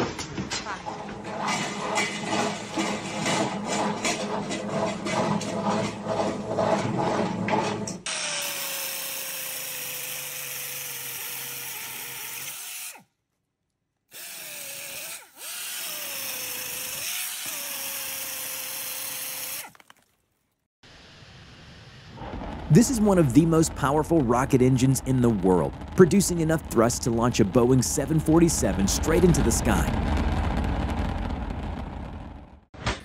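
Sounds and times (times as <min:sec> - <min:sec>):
rhythmic clatter: 0:00.0 - 0:08.0
power tool motor whining: 0:14.1 - 0:19.7.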